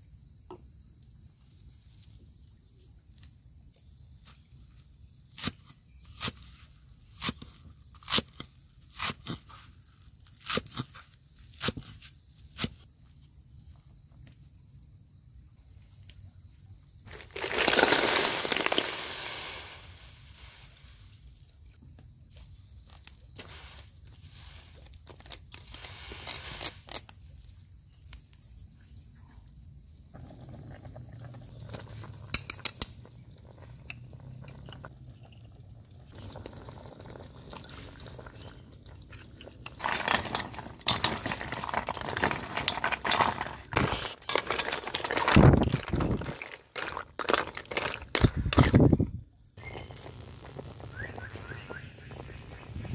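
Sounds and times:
snail shells rattling in basket: 0:17.1 - 0:19.1, 0:36.2 - 0:48.9.

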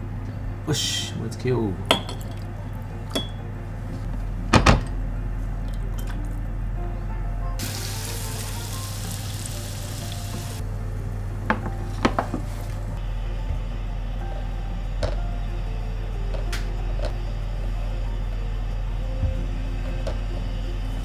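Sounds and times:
soft background music: 0:00.0 - 0:21.0
tableware clinking: 0:01.9 - 0:03.6, 0:05.7 - 0:06.4
frying pan sizzling: 0:07.6 - 0:11.1.

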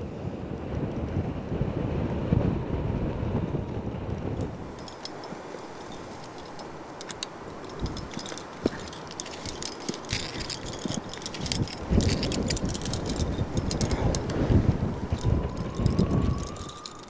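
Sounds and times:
wind buffeting microphone: 0:00.0 - 0:17.0
climbing hardware jangling: 0:04.5 - 0:17.0.

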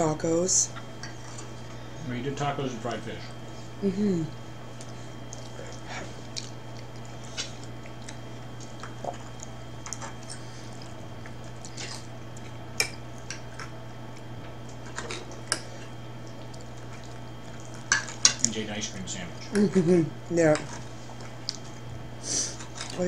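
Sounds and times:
steady low hum: 0:00.0 - 0:23.0
person chewing food: 0:04.7 - 0:18.5, 0:20.8 - 0:21.9.

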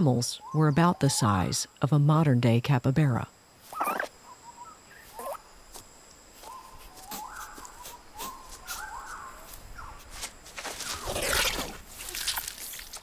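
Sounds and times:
small animal squeaking: 0:03.7 - 0:04.1, 0:05.0 - 0:05.4.

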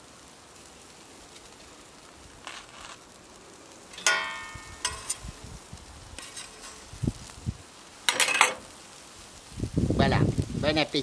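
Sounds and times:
faint steady hiss: 0:00.0 - 0:11.0
metal utensil striking griddle: 0:03.9 - 0:05.3, 0:06.2 - 0:06.9, 0:08.1 - 0:08.7.

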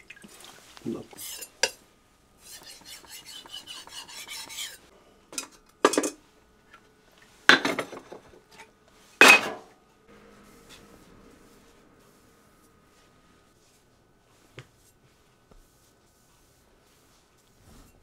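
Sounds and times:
knife rubbing on sharpening stone: 0:01.2 - 0:01.8, 0:02.4 - 0:04.8
hard objects knocking and clattering: 0:07.5 - 0:08.5.

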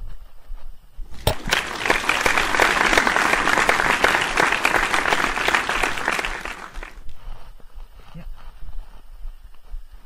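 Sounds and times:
crowd applauding: 0:01.2 - 0:07.0.

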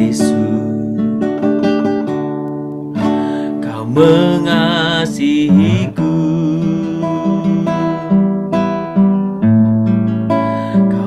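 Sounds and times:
man singing: 0:00.0 - 0:01.5, 0:03.0 - 0:08.5, 0:10.4 - 0:11.0
acoustic guitar strumming: 0:00.0 - 0:11.0.

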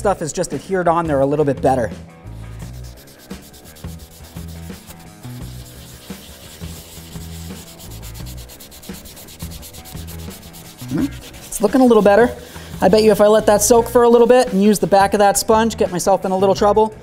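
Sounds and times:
cloth rag scrubbing metal wheel: 0:02.3 - 0:13.0.

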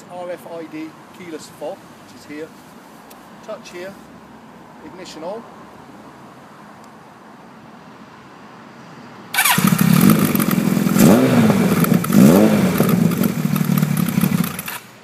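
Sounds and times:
motorcycle engine idling: 0:09.4 - 0:14.8
electric starter cranking: 0:09.4 - 0:14.9
motorcycle engine revving: 0:09.4 - 0:14.9.

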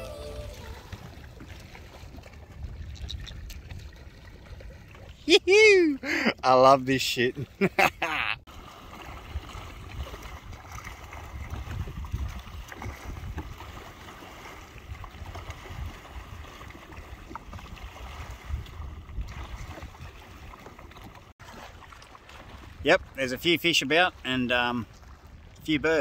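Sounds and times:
watercraft engine rumble: 0:00.0 - 0:17.7
water and wind rushing: 0:00.0 - 0:26.0.

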